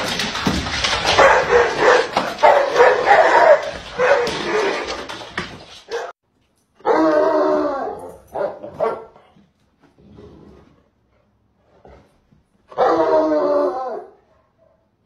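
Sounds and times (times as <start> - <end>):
dogs howling: 1.2 - 5.1, 6.8 - 8.2, 12.8 - 14.2.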